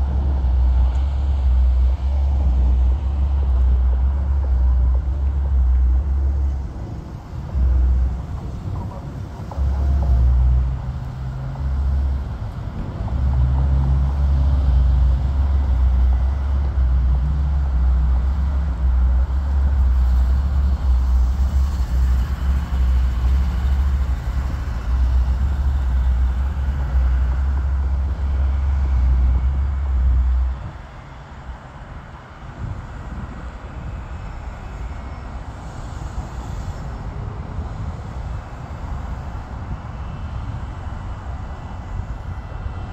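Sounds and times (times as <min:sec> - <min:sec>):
jet airliner engines roaring: 0:00.0 - 0:42.9.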